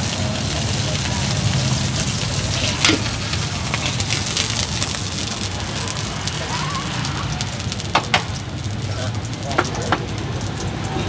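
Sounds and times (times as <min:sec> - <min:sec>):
oil sizzling and crackling in wok: 0:00.0 - 0:11.0.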